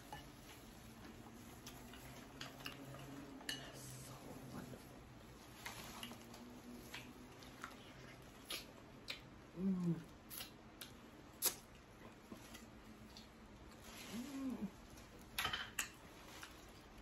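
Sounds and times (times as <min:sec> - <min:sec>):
person humming: 0:09.5 - 0:10.1, 0:14.1 - 0:14.8.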